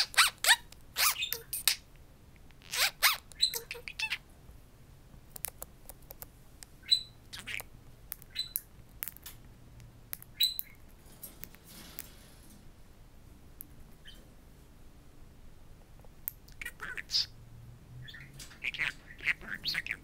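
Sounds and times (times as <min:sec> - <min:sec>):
budgerigar chirping and squawking: 0:00.0 - 0:01.8, 0:02.6 - 0:04.2, 0:06.8 - 0:08.6, 0:16.6 - 0:17.4, 0:18.0 - 0:20.0.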